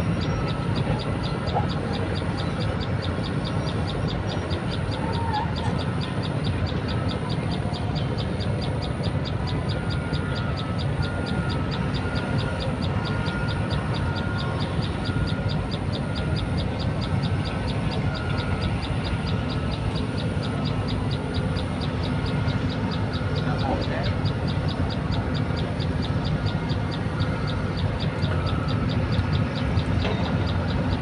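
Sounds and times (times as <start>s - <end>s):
low outdoor rumble: 0.0s - 31.0s.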